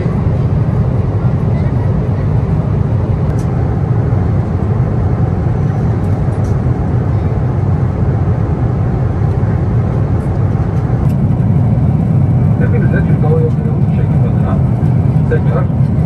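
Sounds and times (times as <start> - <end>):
airliner cabin rumble: 0.0 - 16.0.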